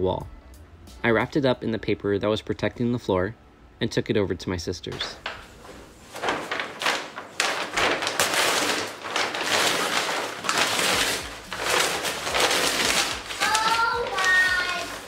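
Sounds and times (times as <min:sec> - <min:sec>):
heavy paper crinkling and tearing: 0:05.0 - 0:15.0.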